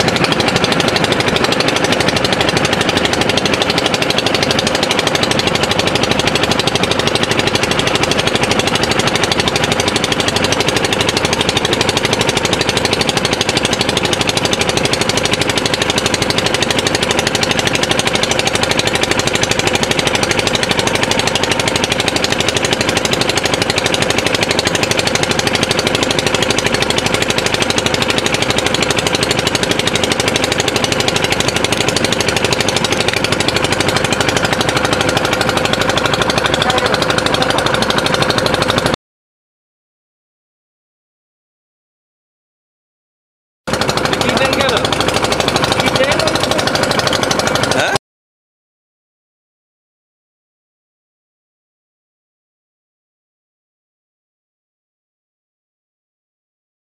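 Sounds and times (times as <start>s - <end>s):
boat diesel engine chugging: 0.0s - 39.0s, 43.7s - 48.0s.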